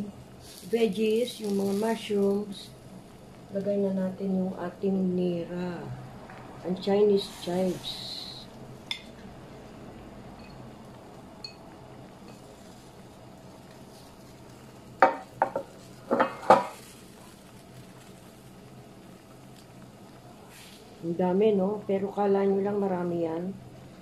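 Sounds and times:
utensils clanking against pot: 0:15.0 - 0:16.8.

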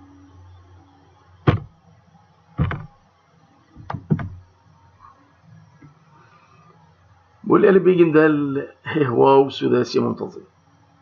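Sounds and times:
sharp knocks: 0:01.5 - 0:01.7, 0:02.6 - 0:02.9, 0:03.8 - 0:04.4.

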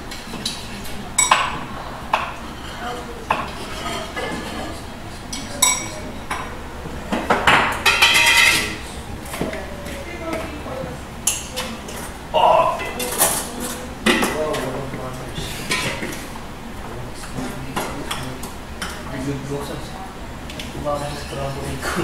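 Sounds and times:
dishes and pots clattering: 0:00.1 - 0:08.8, 0:15.6 - 0:16.3.

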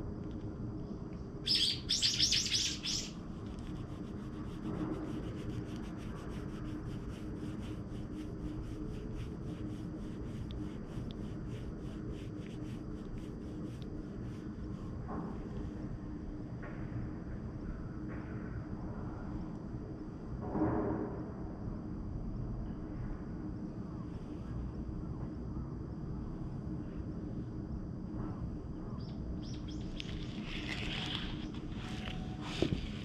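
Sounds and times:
fingers scratching cat fur: 0:03.1 - 0:15.0
loud rustle: 0:29.8 - 0:33.0.

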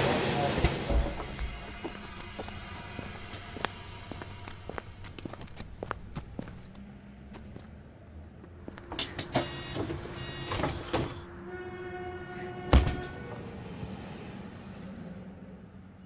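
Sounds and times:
tram clicks and clunks: 0:00.0 - 0:07.7, 0:08.4 - 0:11.2.

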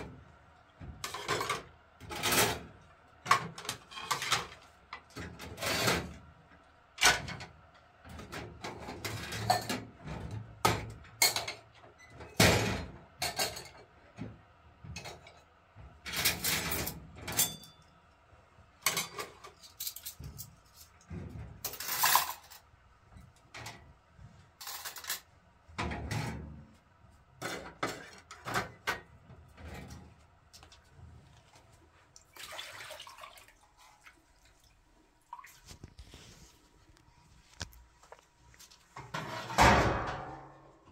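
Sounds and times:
metal dishes clattering on rack: 0:01.0 - 0:02.7, 0:03.3 - 0:04.6, 0:08.2 - 0:13.9, 0:16.1 - 0:17.8, 0:18.8 - 0:20.5, 0:21.2 - 0:22.6, 0:24.6 - 0:26.5, 0:27.4 - 0:29.1, 0:39.0 - 0:40.6.

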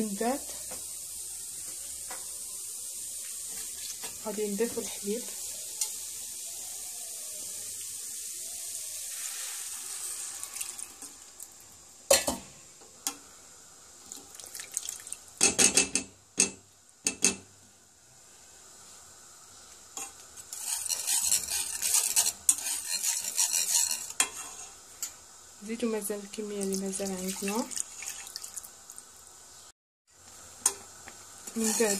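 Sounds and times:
roux sizzling in saucepan: 0:00.0 - 0:15.6, 0:16.6 - 0:31.9
whisk clicking and scraping: 0:20.5 - 0:24.8, 0:31.5 - 0:31.9.

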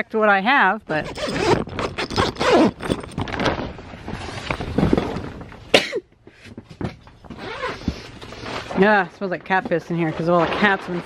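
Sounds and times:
plastic tarp rustling: 0:01.0 - 0:05.8, 0:07.3 - 0:11.0.

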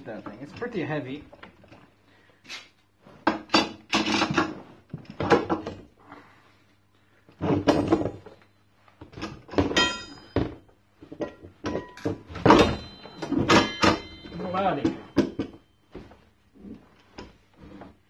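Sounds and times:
metal tools knocking on metal frame: 0:03.2 - 0:05.8, 0:09.0 - 0:16.2.

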